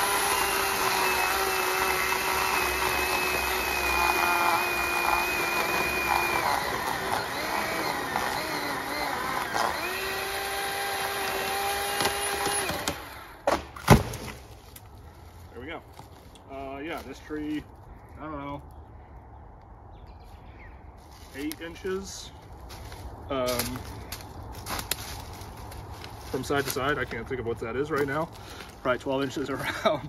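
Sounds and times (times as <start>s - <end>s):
electric chainsaw whine: 0.0s - 13.4s
tree cracking and falling: 23.6s - 26.9s.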